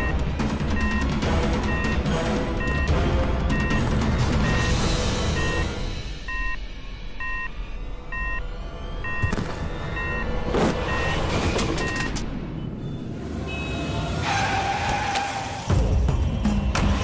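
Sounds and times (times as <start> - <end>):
electronic beeps: 0.0 - 6.6, 7.2 - 13.9.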